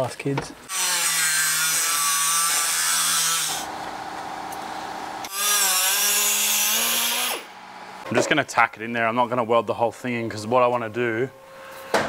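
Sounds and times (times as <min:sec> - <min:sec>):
cut-off wheel cutting metal: 0:00.7 - 0:08.1.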